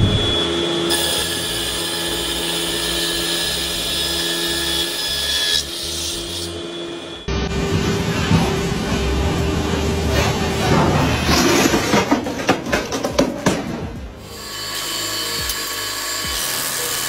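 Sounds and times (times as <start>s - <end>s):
rip saw cutting wood: 14.2s - 17.0s.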